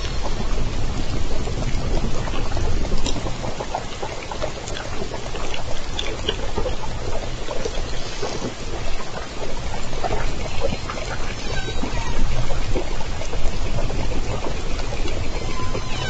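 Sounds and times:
underwater water hiss: 0:07.8 - 0:09.0.

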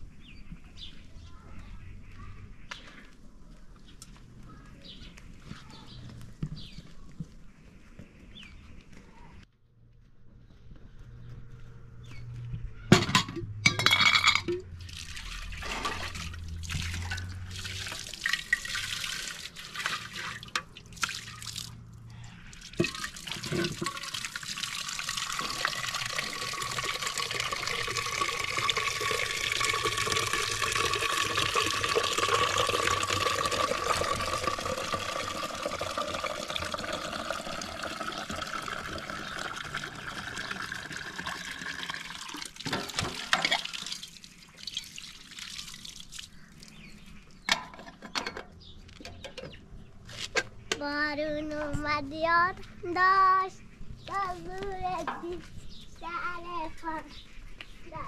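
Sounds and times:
knocks and clatters: 0:12.9 - 0:14.7
water pouring into a vessel: 0:14.8 - 0:21.8, 0:22.6 - 0:46.8.

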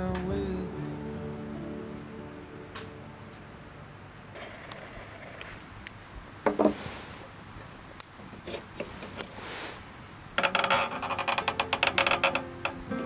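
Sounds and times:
faint scrapes: 0:08.9 - 0:09.9
brief hiss: 0:09.3 - 0:09.9
rattle of metal clicks: 0:10.4 - 0:12.8.

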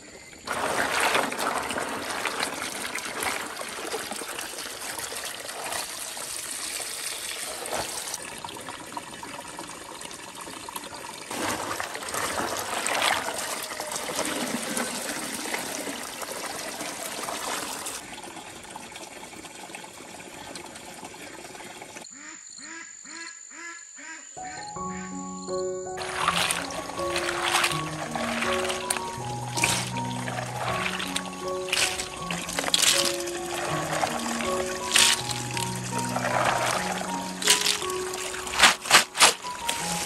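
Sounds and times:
water pouring into plastic basin: 0:00.4 - 0:22.0, 0:26.0 - 0:40.0
hands stirring snails in water: 0:00.5 - 0:04.2, 0:11.3 - 0:14.5, 0:26.0 - 0:40.0.

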